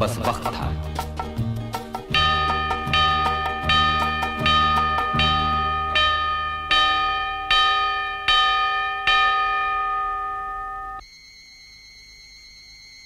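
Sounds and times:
bell-like chime strokes: 2.1s - 11.0s
faint steady high tone: 5.1s - 13.0s.

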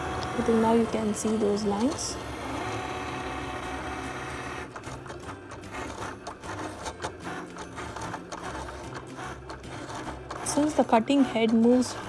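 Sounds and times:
cutting machine motor hum: 0.0s - 12.0s.

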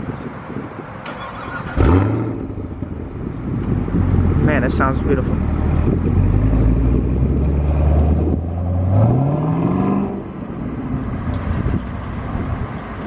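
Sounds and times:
car engine accelerating: 3.6s - 10.4s.

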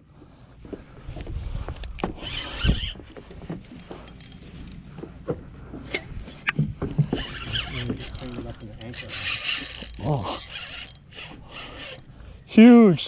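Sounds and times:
fishing rod knocks and clicks: 3.0s - 12.1s.

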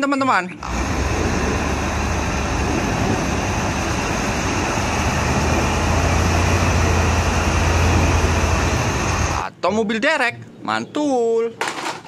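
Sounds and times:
diesel truck engine droning: 0.0s - 9.5s.

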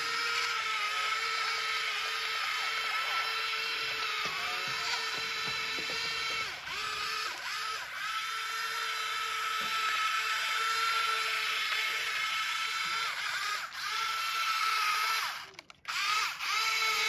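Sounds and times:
electric motor whining: 0.0s - 17.0s.

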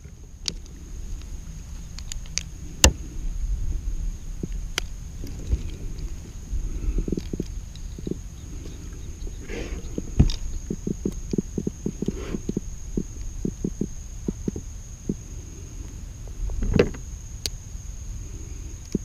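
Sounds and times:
steady faint high tone: 0.0s - 19.0s.

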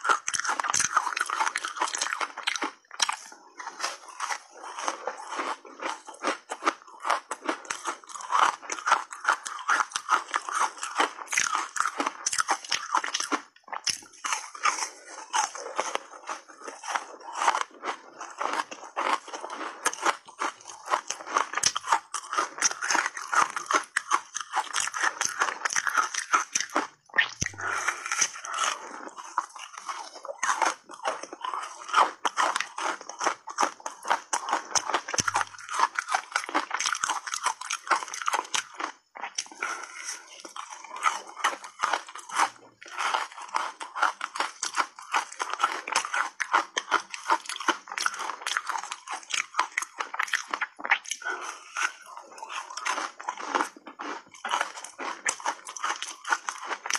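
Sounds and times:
crunching and chewing ice: 0.0s - 56.9s.

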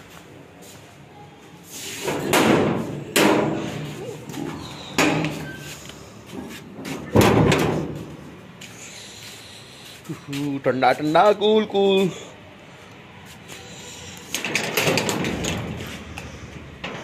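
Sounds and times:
loud bangs and knocks: 7.1s - 8.1s.

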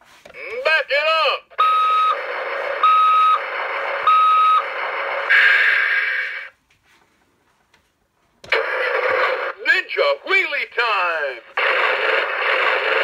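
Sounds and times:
toy truck engine sound effect: 1.6s - 6.5s, 8.6s - 9.6s.

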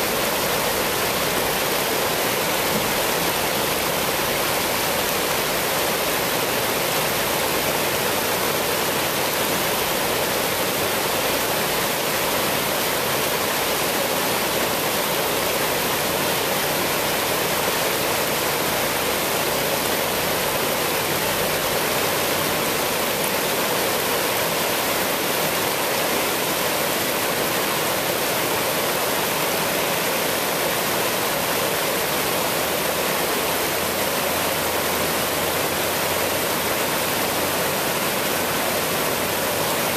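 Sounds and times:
river water rushing over rocks: 0.0s - 39.9s.

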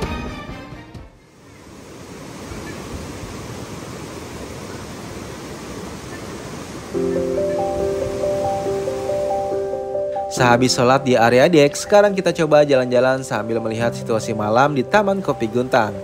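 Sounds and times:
music: 0.0s - 1.3s, 7.0s - 16.0s
river water flowing: 1.3s - 16.0s.

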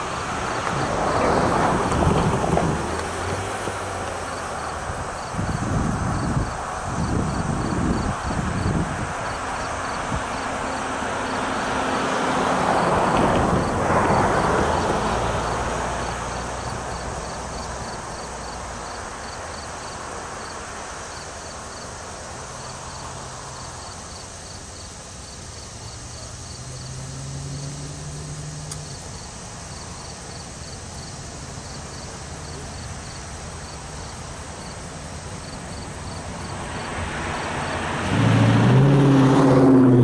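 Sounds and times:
distant diesel locomotive drone: 0.0s - 40.0s
insects chirping: 0.1s - 38.6s
broad rushing noise: 27.8s - 40.0s.

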